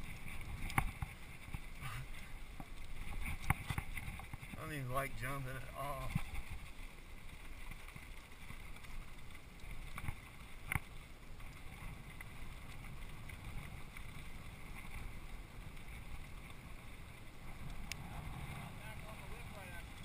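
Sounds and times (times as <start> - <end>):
bike rattling: 0.0 - 20.0
bike tyres rolling on dirt: 0.0 - 20.0
wind on microphone: 11.4 - 20.0.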